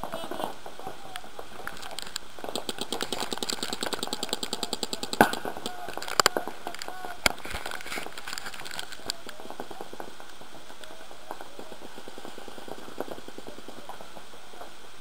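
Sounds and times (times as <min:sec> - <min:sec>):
paintball markers popping: 0:01.6 - 0:14.4
sharp nearby paintball shot: 0:02.4 - 0:07.5.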